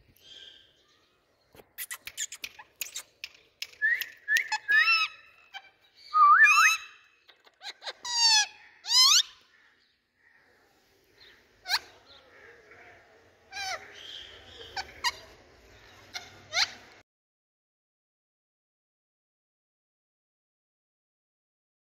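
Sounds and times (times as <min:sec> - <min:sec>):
soft bird chatter: 0:00.0 - 0:17.0
parakeets whistled calls: 0:03.8 - 0:07.1
parakeet squawks: 0:13.5 - 0:16.9.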